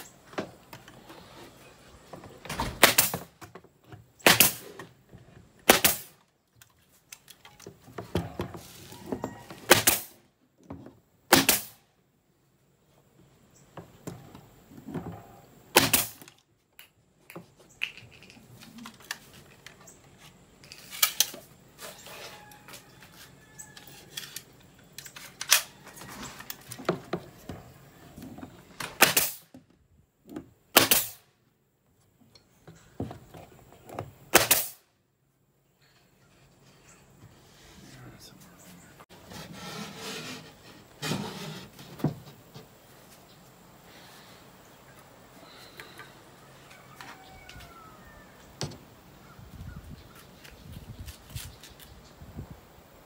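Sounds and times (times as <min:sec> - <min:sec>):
nail gun firing into plywood: 0:02.8 - 0:03.3, 0:04.2 - 0:04.8, 0:05.6 - 0:06.2, 0:09.7 - 0:10.2, 0:11.3 - 0:11.8, 0:15.7 - 0:16.3, 0:28.8 - 0:29.5, 0:30.7 - 0:31.2, 0:34.3 - 0:34.8.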